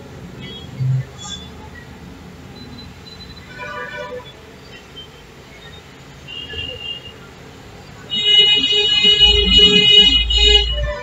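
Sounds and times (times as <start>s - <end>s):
vehicle horn blast: 8.1s - 11.0s.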